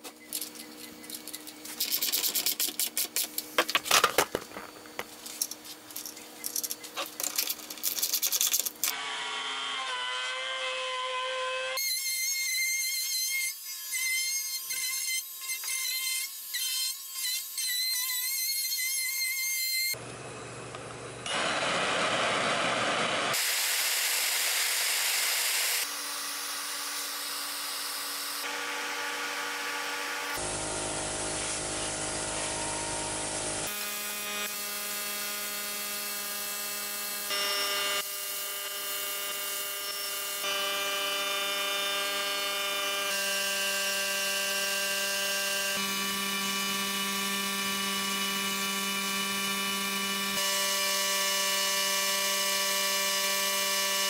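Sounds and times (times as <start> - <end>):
workshop tool noises: 0.0 - 9.0
wood router whining: 8.9 - 18.0, 19.8 - 54.0.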